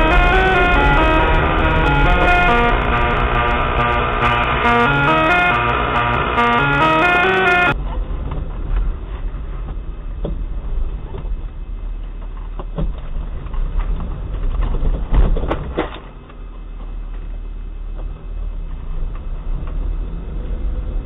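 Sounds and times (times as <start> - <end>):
car engine rumble: 0.0 - 4.9.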